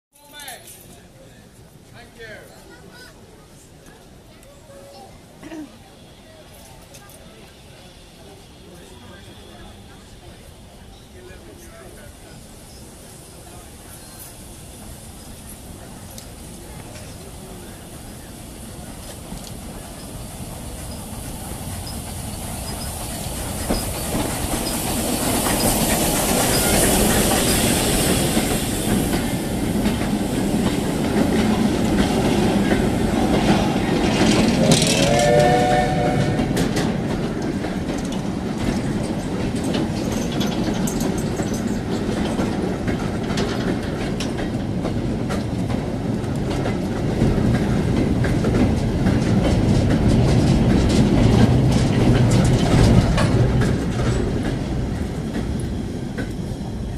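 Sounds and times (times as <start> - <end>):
steam hissing: 7.4 - 46.2
wheels clattering over rail joints: 18.9 - 56.9.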